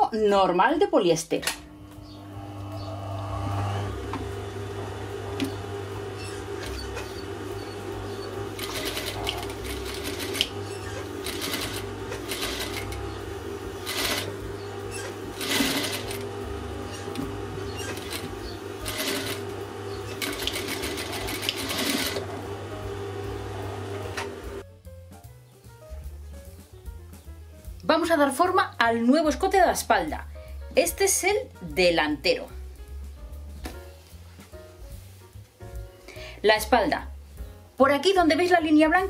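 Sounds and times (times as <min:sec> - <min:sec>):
steady low hum: 0:01.5 - 0:24.6
sewing machine stitching: 0:06.2 - 0:13.2, 0:13.8 - 0:16.3, 0:16.9 - 0:22.3.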